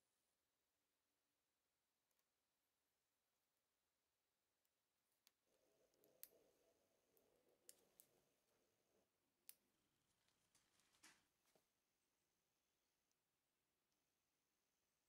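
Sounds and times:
faint clicks: 5.2 - 8.6
soft rustle of hands: 9.7 - 11.8.

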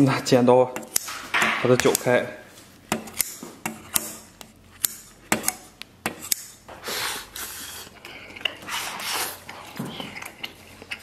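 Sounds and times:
scissors snipping: 0.8 - 1.1, 2.9 - 6.5.

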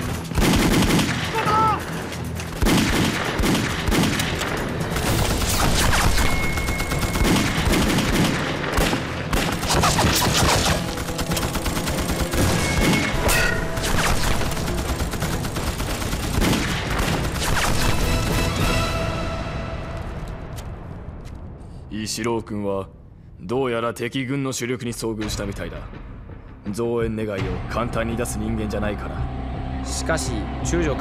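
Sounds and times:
rapid rifle and automatic gunfire: 0.0 - 1.4, 2.4 - 18.3.

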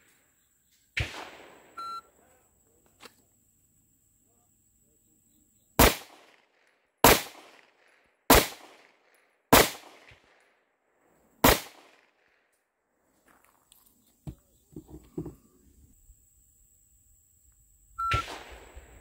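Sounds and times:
pistol shots: 1.0 - 1.8, 5.8 - 10.4, 11.4 - 12.4, 18.1 - 19.0.

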